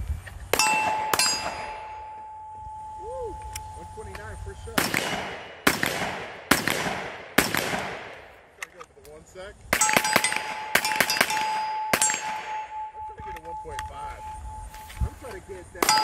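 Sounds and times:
pistol shots: 0.5 - 2.0, 4.7 - 8.4, 9.7 - 13.0
rifle shots echoing: 0.5 - 2.3, 4.7 - 8.6, 9.7 - 13.8, 15.8 - 16.0
steel targets clanging: 0.6 - 4.4, 9.8 - 14.4, 15.8 - 16.0.

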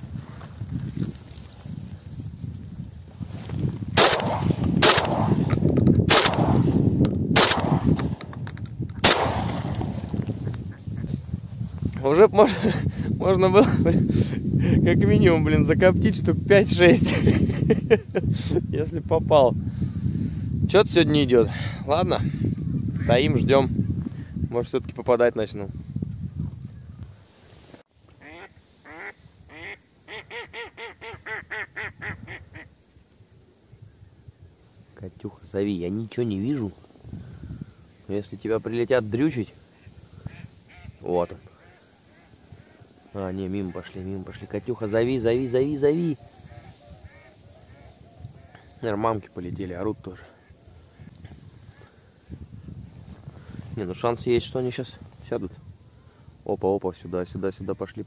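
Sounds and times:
shotgun shots: 4.0 - 8.2, 9.0 - 10.2
duck quacking: 28.2 - 32.7, 46.5 - 48.5.

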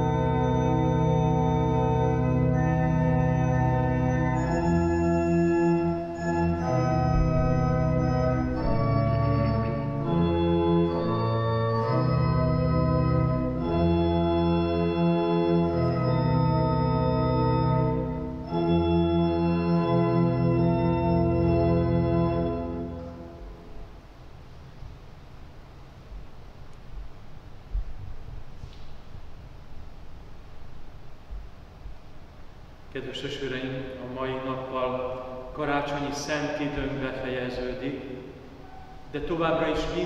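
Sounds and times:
church organ playing held chords: 0.0 - 24.1, 33.0 - 40.0.

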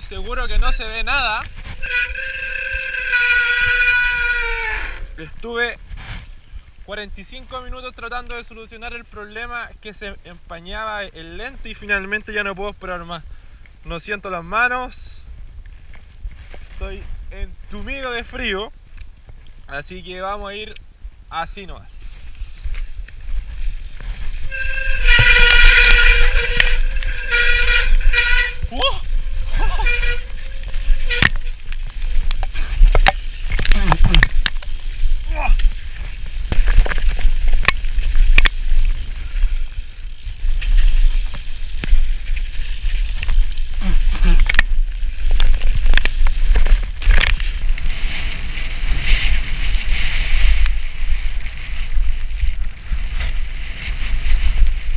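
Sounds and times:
wind buffeting microphone: 22.3 - 54.9
bike rattling over dirt track: 22.6 - 54.9
high-pitched brake squeal: 24.5 - 28.7
tyres hissing through wet mud: 40.8 - 45.6.

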